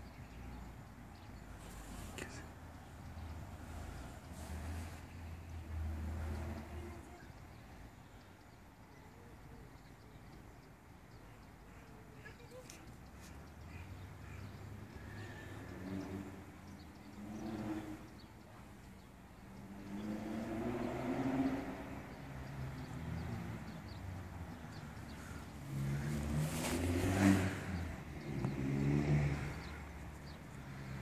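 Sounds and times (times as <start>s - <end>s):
vehicle engines passing by: 0.0s - 31.0s.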